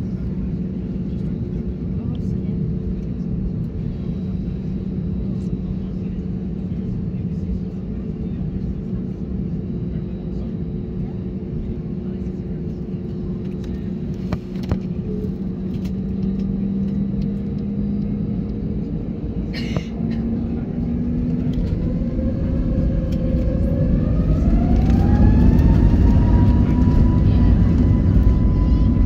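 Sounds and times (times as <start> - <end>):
rumble of takeoff roll: 0.0 - 29.0
jet engines spooling up: 20.6 - 29.0.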